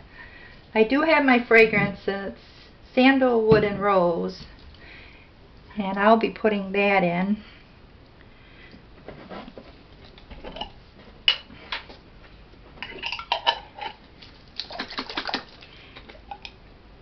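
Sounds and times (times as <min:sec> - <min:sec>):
containers and utensils clinking: 0:12.8 - 0:16.5.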